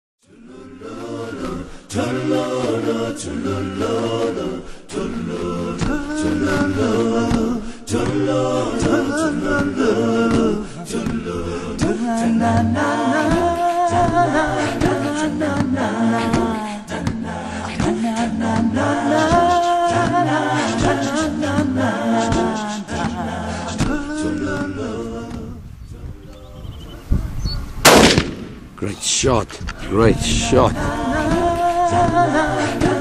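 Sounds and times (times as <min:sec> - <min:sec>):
group singing in harmony: 0:00.2 - 0:27.2, 0:29.6 - 0:33.0.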